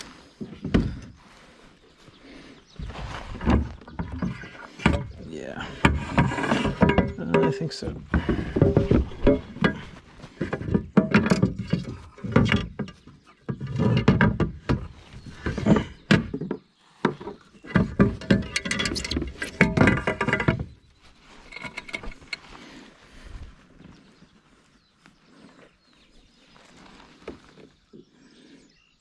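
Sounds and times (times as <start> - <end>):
knocking and clattering: 3.4 - 20.8.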